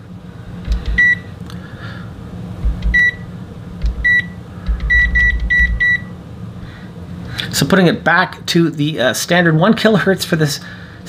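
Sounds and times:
short high beeps: 2.9s - 3.2s, 4.0s - 6.1s.

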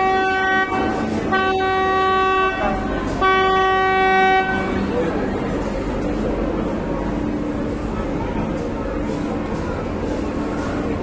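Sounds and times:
ferry horn blasts: 0.0s - 5.1s.

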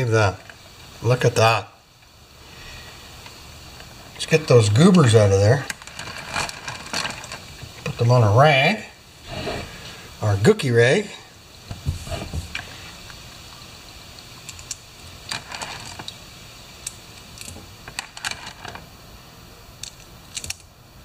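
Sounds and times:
small metal bolts clicking: 19.8s - 20.7s.

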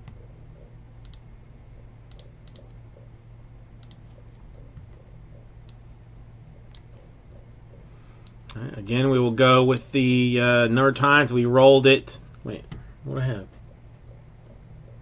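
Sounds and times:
steady low hum: 0.0s - 15.0s
computer keyboard keystrokes: 3.8s - 4.1s.

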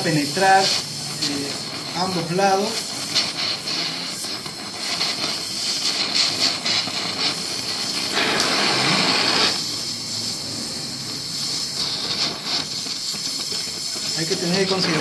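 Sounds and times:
torch flame hissing: 0.0s - 15.0s.

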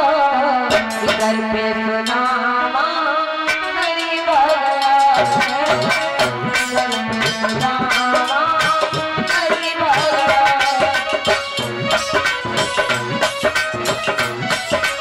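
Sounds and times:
woman singing: 0.0s - 11.9s
percussion strokes: 0.7s - 2.5s, 3.5s - 15.0s
sustained accompanying notes: 3.6s - 15.0s.

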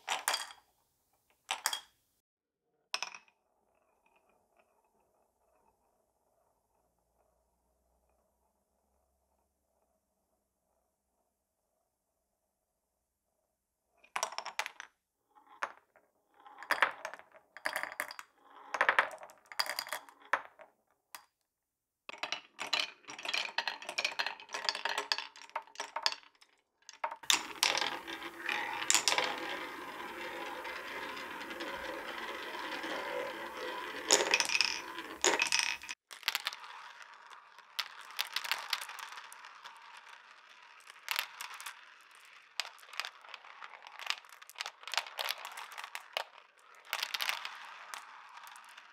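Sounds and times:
marbles rattling on wooden blocks: 0.0s - 0.6s, 16.4s - 20.6s, 22.1s - 48.9s
ball rolling on wooden spiral track: 15.4s - 20.6s, 27.1s - 48.9s
marbles clicking in plastic funnel: 27.2s - 48.9s.

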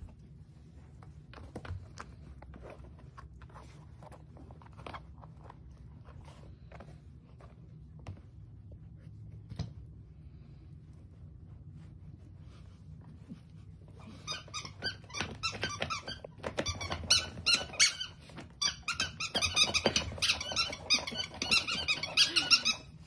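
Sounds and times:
steady low hum: 0.0s - 14.2s
puppies chewing a shoe: 0.0s - 23.0s.

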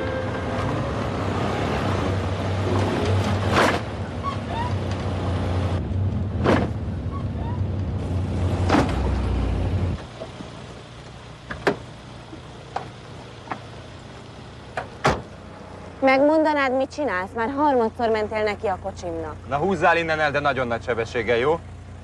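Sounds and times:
car engines idling: 0.0s - 22.0s
car bumping into car: 6.4s - 6.9s, 8.6s - 9.2s, 11.4s - 13.8s, 14.7s - 15.4s.

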